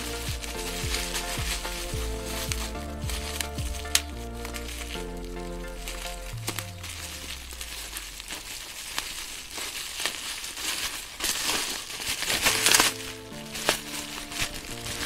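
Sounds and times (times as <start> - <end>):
background music: 0.0 - 8.3, 12.4 - 15.0
bubble wrap crinkling: 0.0 - 15.0.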